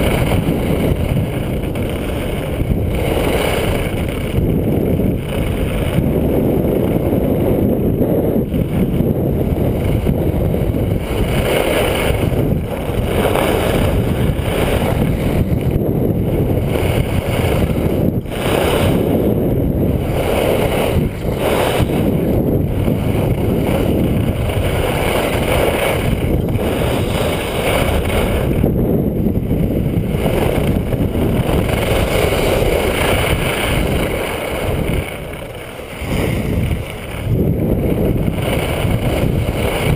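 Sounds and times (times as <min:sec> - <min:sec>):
wind buffeting microphone: 0:00.0 - 0:39.9
skis hissing on snow: 0:18.3 - 0:19.0, 0:20.0 - 0:22.2, 0:24.5 - 0:28.5, 0:30.1 - 0:37.3.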